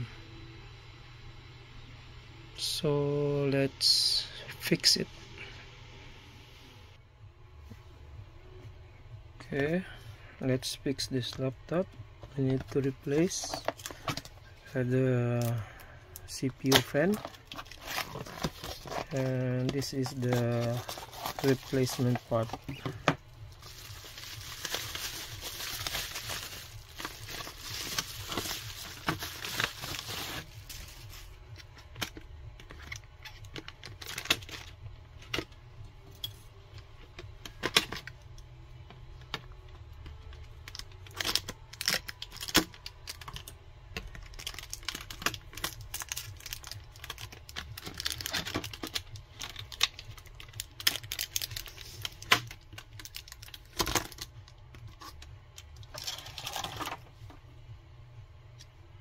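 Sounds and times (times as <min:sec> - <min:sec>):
bubble wrap crinkling: 0:12.4 - 0:34.8, 0:40.1 - 0:57.3.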